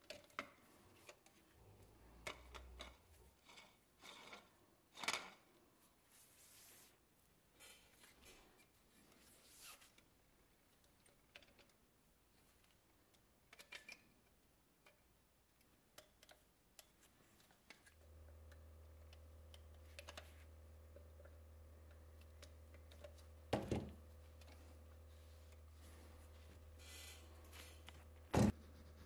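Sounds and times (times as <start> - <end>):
low steady hum: 16.8 - 29.0.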